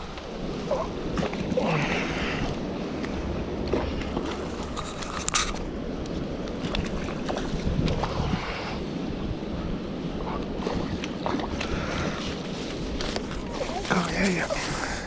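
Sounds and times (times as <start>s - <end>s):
wind buffeting microphone: 0.0s - 15.0s
fishing rod clicks and rustles: 3.0s - 8.2s, 10.4s - 14.2s.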